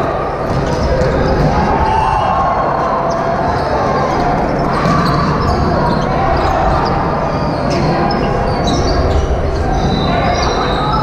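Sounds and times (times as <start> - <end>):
chatter of voices in hall: 0.0 - 11.0
sneakers squeaking on gym floor: 4.4 - 11.0.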